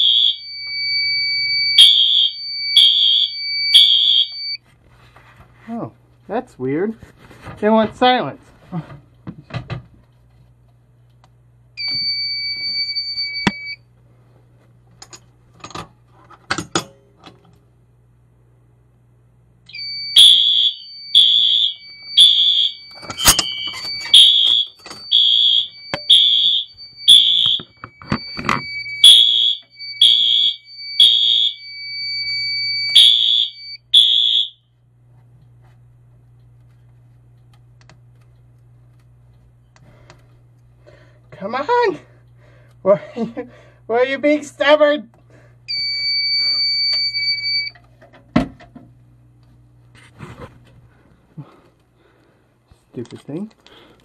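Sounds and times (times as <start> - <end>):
fire alarm beep: 0.0 - 4.6, 11.8 - 13.8, 19.7 - 34.7, 45.7 - 47.8
fire alarm tone: 0.0 - 4.6, 11.8 - 13.8, 19.7 - 34.7, 45.7 - 47.8.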